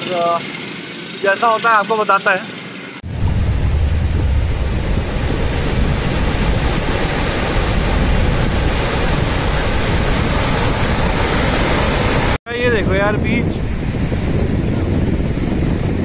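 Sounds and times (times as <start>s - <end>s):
wind rumbling on microphone: 3.0s - 16.0s
small waves breaking on beach: 4.5s - 12.4s.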